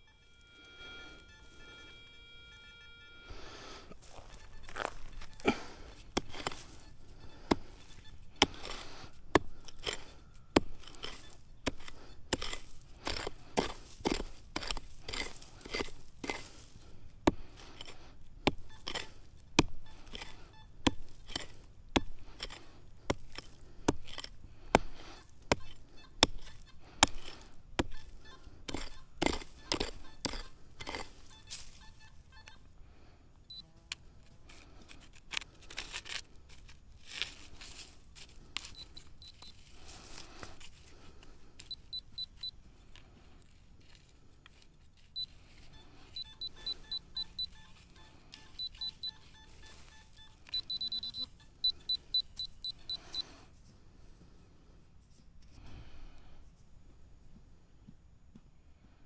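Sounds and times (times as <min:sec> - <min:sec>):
metal detector beeps: 0:00.0 - 0:16.5, 0:17.2 - 0:23.5, 0:24.1 - 0:32.7, 0:33.5 - 0:33.7, 0:38.6 - 0:40.5, 0:41.6 - 0:42.6, 0:45.1 - 0:53.5
crunching footsteps: 0:03.3 - 0:32.2, 0:34.0 - 0:51.0.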